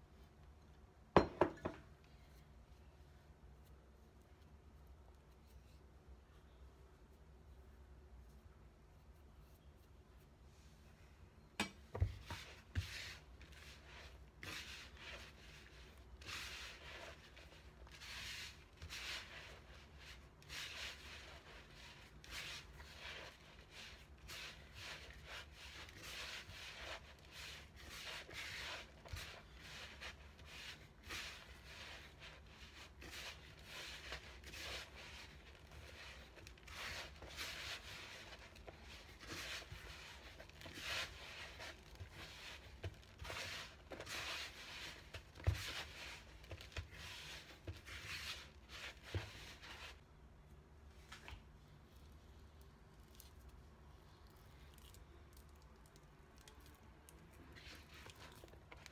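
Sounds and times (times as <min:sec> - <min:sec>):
hand kneading dough in bowl: 0:11.8 - 0:50.1, 0:50.8 - 0:58.9.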